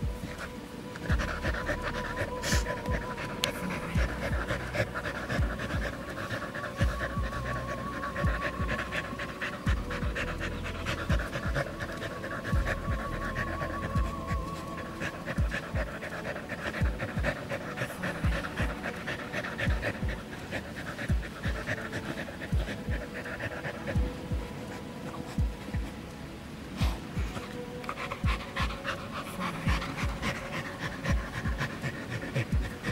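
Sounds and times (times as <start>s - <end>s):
dull low thumps: 0.0s - 6.1s, 6.8s - 16.2s, 16.8s - 17.4s, 18.2s - 18.9s, 19.6s - 20.5s, 21.1s - 21.7s, 22.4s - 23.2s, 23.9s - 24.7s, 25.4s - 27.4s, 28.2s - 28.8s, 29.6s - 30.3s, 31.1s - 31.8s, 32.4s - 32.9s
dog panting: 0.0s - 26.1s, 26.7s - 32.9s.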